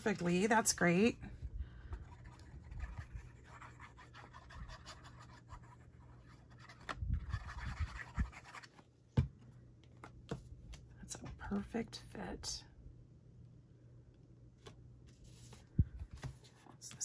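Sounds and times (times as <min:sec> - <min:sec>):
paper rustling and scratching: 0:02.0 - 0:08.8.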